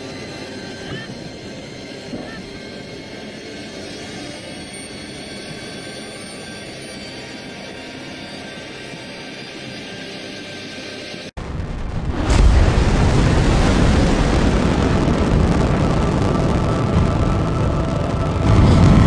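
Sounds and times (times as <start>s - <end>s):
faint sustained high tones: 0.0s - 11.3s
dense rumbling drone: 11.4s - 19.0s.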